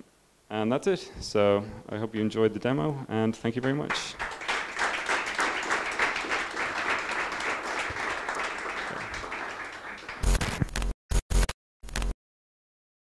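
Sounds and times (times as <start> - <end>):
audience applauding: 3.6 - 10.6.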